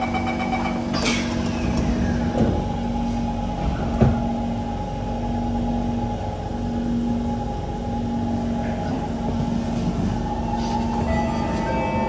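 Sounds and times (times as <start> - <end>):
steady whine: 0.0 - 12.0
train carriage hum: 0.0 - 12.0
train doors knocking shut: 3.6 - 4.3.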